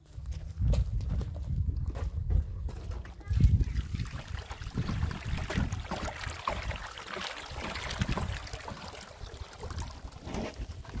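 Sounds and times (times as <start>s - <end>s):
water glugging from a jerrycan: 2.8s - 11.0s
water splashing into water: 3.2s - 11.0s.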